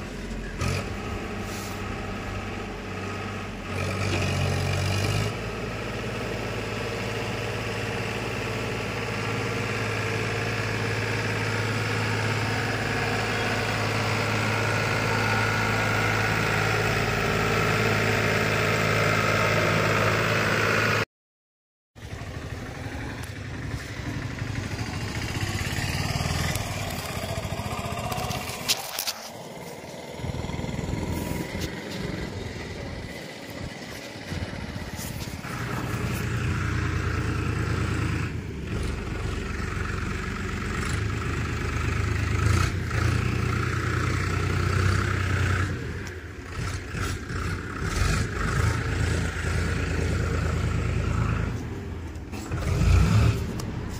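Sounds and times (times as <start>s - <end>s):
vehicle engine running: 0.0s - 21.0s, 22.0s - 53.9s.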